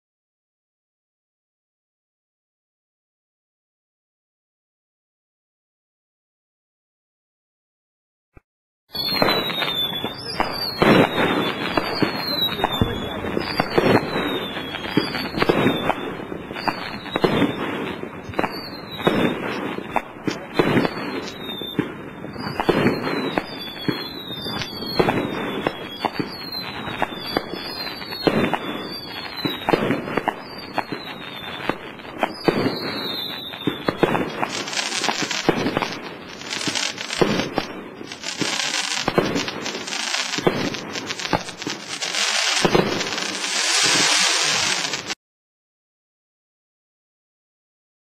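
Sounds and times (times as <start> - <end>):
firework shots with whistle: 8.9 - 45.2
firework hiss bursts: 9.1 - 45.2.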